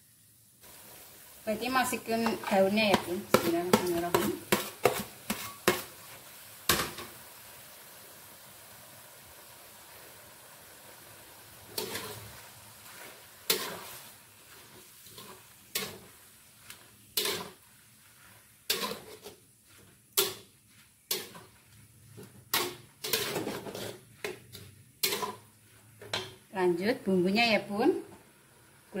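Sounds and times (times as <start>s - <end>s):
metal spatula scraping a wok: 1.8s - 7.1s, 11.7s - 26.5s.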